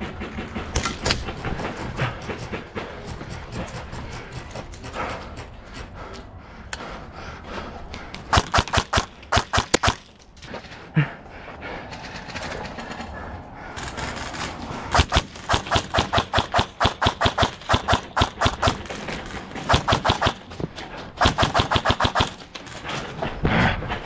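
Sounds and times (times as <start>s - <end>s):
airsoft guns firing: 8.3s - 10.2s, 13.8s - 20.6s, 21.2s - 22.6s.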